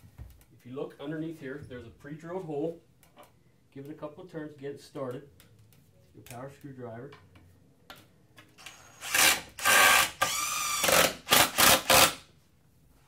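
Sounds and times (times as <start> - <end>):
power screwdriver driving screw into wood: 8.6 - 12.2.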